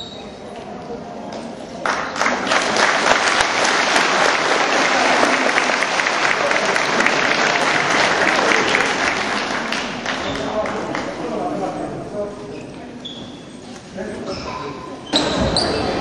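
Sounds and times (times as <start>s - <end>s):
crowd clapping: 1.8s - 11.4s.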